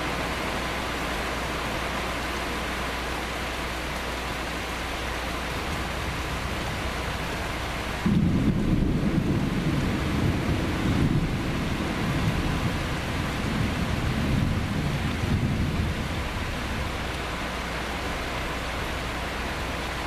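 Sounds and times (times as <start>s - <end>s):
steady rain: 0.0s - 20.0s
thunder rumbling: 5.6s - 19.8s.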